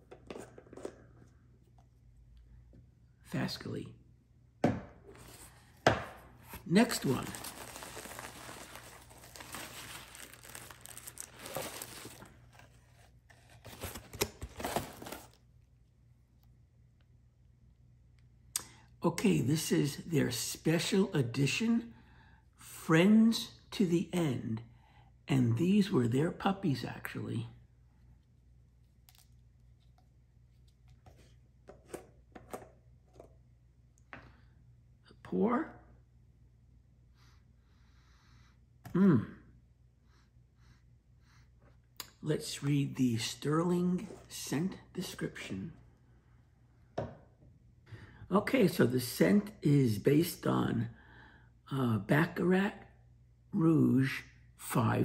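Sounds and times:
packaging crinkling and rustling: 0:06.4 - 0:15.4.

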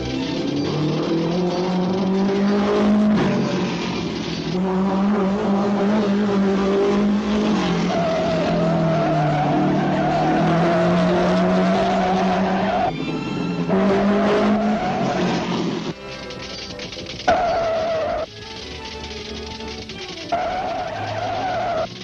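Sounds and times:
cartoon car engine drone: 0:00.0 - 0:16.0, 0:17.3 - 0:18.3
tyres skidding squeal: 0:07.5 - 0:15.9, 0:17.3 - 0:18.3, 0:20.3 - 0:22.0.

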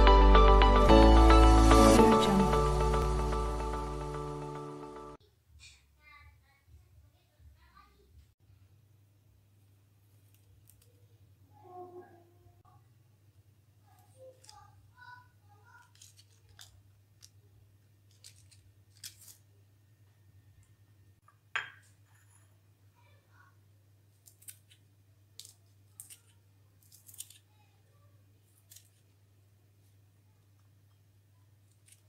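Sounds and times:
scissors snipping chillies: 0:18.1 - 0:19.5, 0:24.2 - 0:24.8.

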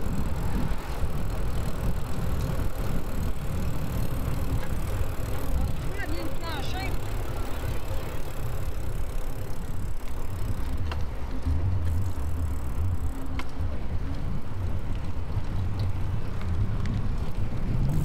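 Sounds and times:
bicycle tyre and road noise: 0:00.0 - 0:18.0
wind rumbling on microphone: 0:00.0 - 0:18.0.

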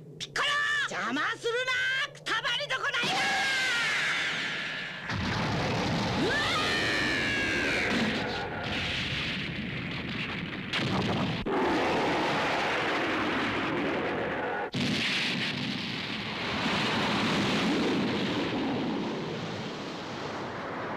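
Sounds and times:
crashing and rushing rumble: 0:04.3 - 0:20.9.

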